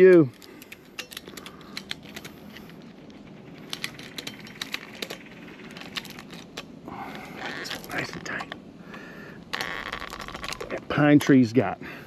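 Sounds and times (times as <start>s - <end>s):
sharp clicks of metal hardware: 0.0s - 2.7s, 3.6s - 6.7s.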